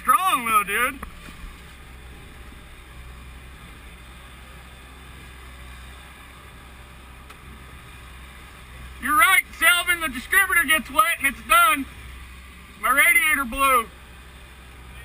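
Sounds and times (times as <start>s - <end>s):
heavy equipment engine rumbling: 0.0s - 15.0s.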